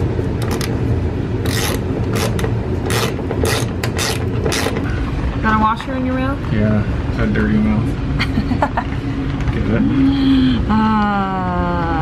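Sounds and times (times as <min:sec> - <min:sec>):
steady low hum: 0:00.0 - 0:12.0
ratchet wrench strokes: 0:01.4 - 0:04.9.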